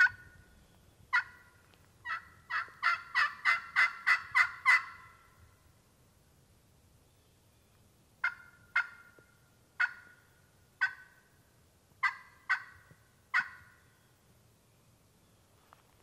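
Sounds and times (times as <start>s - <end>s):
turkey call notes: 0.0s - 5.4s, 8.2s - 11.4s, 12.0s - 14.0s.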